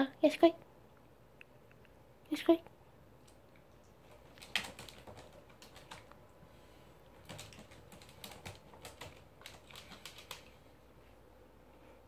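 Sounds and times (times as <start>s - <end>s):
dog claws clicking on plastic: 4.1s - 6.1s, 7.2s - 10.5s.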